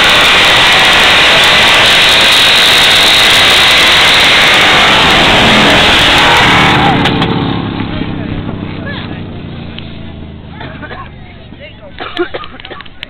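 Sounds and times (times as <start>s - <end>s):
lawnmower engines running: 0.0s - 13.0s.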